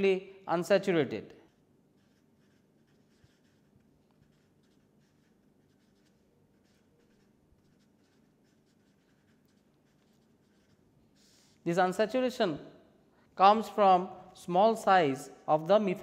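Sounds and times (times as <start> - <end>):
marker scratching on paper: 1.5 - 12.0.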